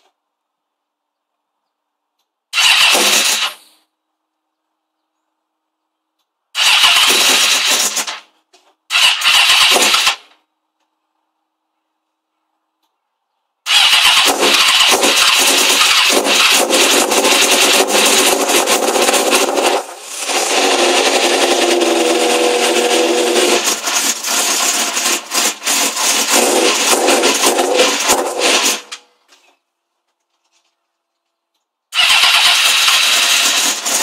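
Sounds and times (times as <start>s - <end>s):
motorcycle starter cranking: 2.2s - 3.9s, 6.5s - 10.5s, 13.6s - 29.3s, 31.6s - 34.0s.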